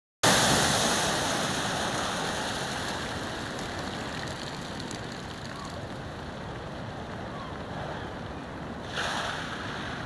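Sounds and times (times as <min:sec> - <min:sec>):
seawater rushing over stone: 0:00.2 - 0:05.5.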